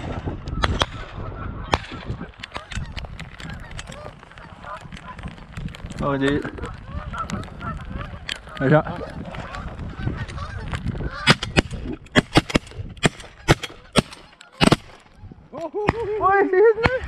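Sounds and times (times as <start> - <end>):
shotgun blasts: 0.0 - 2.8, 11.2 - 15.1
geese honking: 0.5 - 15.7.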